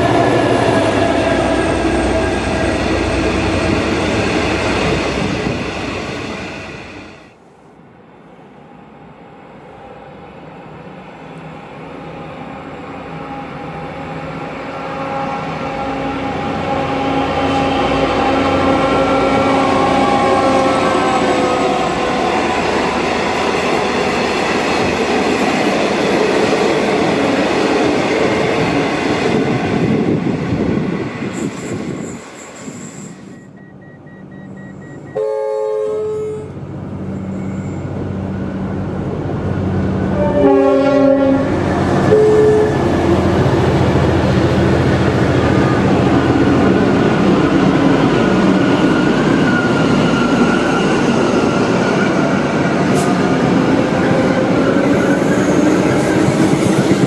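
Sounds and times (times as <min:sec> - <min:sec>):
diesel locomotive passing: 0:00.0 - 0:57.0
diesel train engine hum: 0:00.0 - 0:57.0
rail noise: 0:00.0 - 0:57.0
train horn blasts: 0:13.1 - 0:22.2, 0:35.2 - 0:36.6, 0:40.1 - 0:43.0.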